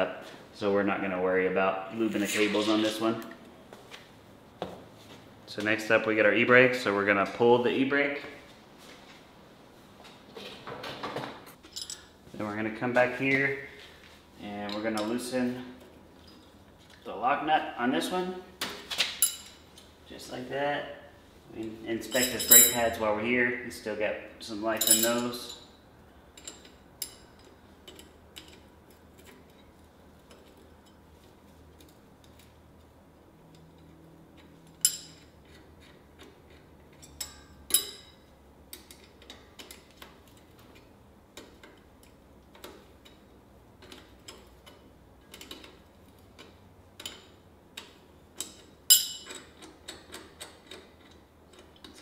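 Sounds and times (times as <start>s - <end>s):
wrench clicking on metal nuts: 46.4s - 52.0s.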